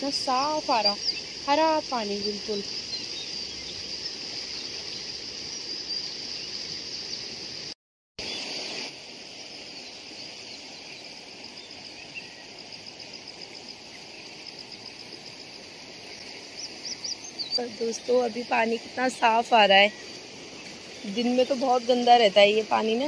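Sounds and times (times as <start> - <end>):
water running in a channel: 0.0 - 6.0, 12.6 - 23.0
insects chirring: 0.0 - 23.0.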